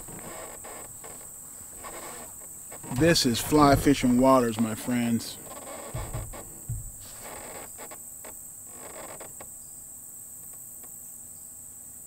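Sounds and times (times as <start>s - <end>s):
soft rustling: 0.0s - 9.4s
high-pitched insect chorus: 0.0s - 12.0s.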